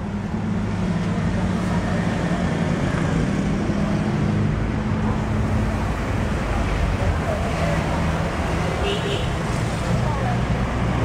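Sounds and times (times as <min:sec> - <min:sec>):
broad rushing noise: 0:00.0 - 0:11.0
traffic engine hum: 0:00.0 - 0:11.0.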